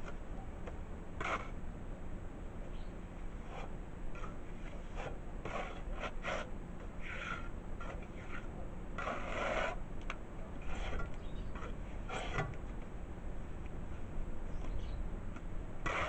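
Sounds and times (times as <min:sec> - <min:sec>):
trowel scraping wet mortar: 0:01.2 - 0:01.6, 0:03.4 - 0:09.8, 0:10.6 - 0:12.5.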